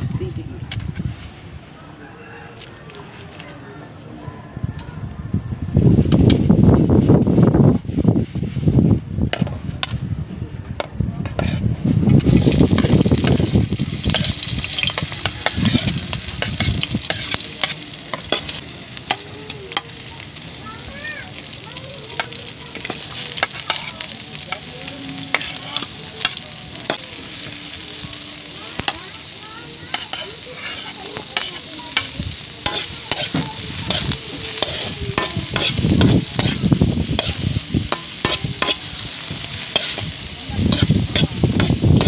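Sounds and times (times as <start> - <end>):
food sizzling in oil: 11.3 - 42.0.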